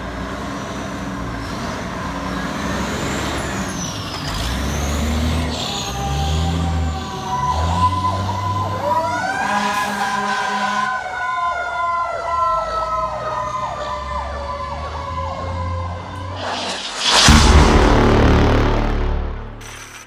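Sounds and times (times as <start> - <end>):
rising and falling siren: 5.4 - 19.6
pulsing siren: 5.5 - 17.6.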